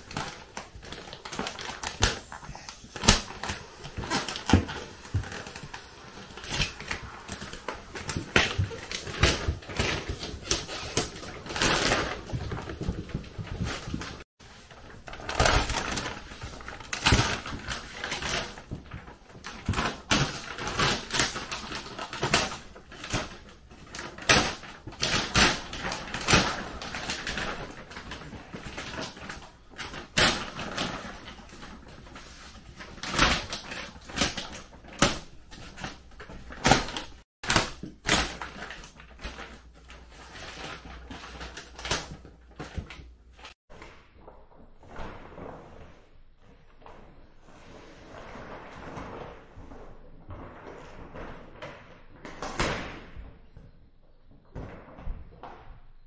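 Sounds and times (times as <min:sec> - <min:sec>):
plastic film crinkling: 0:00.0 - 0:43.6.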